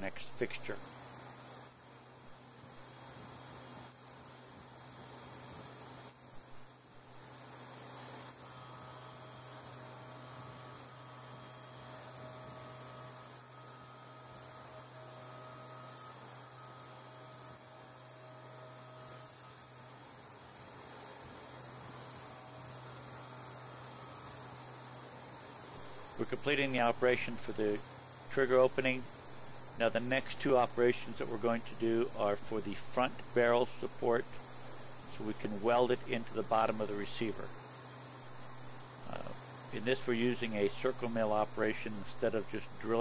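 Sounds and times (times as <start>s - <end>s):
milling machine whine: 21.6s - 43.0s.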